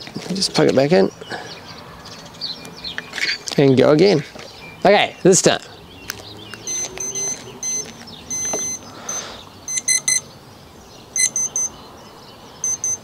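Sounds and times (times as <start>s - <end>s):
short high electronic beeps: 6.7s - 10.2s, 11.2s - 11.7s, 12.6s - 13.0s.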